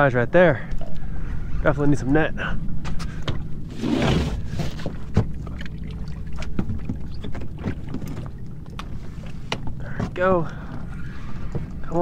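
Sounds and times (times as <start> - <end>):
water slapping against boat hull: 2.9 - 12.0.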